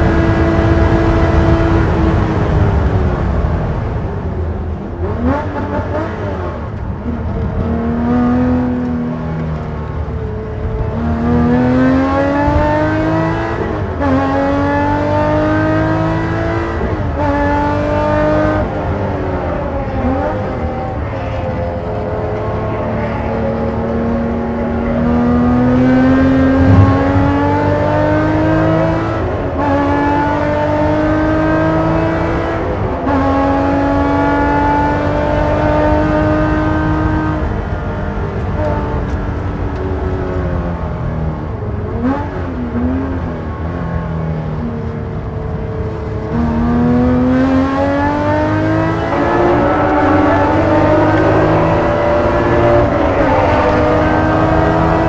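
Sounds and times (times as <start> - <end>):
race car engine revving through gears: 5.0 - 10.1, 10.8 - 21.0, 21.8 - 39.2, 45.8 - 55.0.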